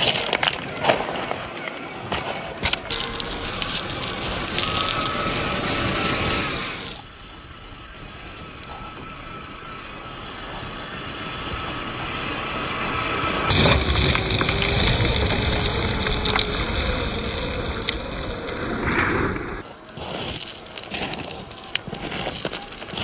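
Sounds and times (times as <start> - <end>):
stones clicking: 0.0 - 5.3
tyres crunching on gravel: 0.0 - 15.2, 19.6 - 23.0
electric motor whine: 0.0 - 18.8, 19.4 - 23.0.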